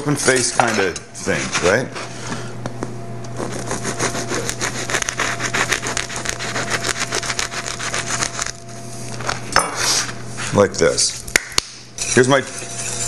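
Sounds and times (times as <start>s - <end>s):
bread knife sawing crusty loaf: 1.2s - 2.2s, 3.4s - 8.6s.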